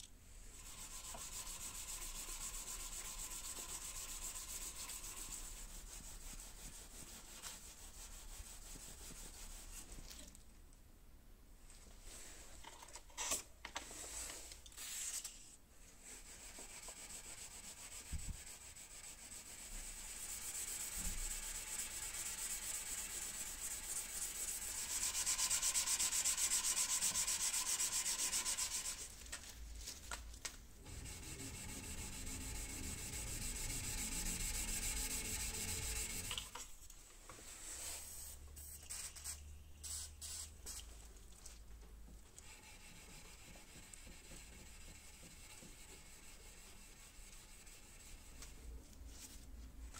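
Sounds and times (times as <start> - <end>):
sandpaper rubbing on metal blade: 0.6 - 9.7, 16.2 - 29.1, 30.9 - 36.4.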